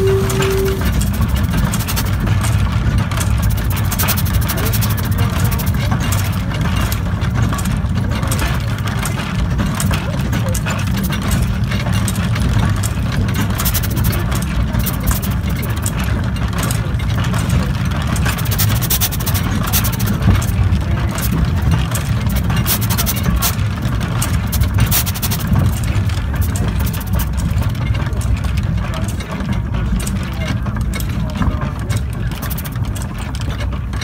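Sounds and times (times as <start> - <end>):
steam hiss and clatter: 0.0 - 34.0
steam locomotive rumbling: 0.0 - 34.0.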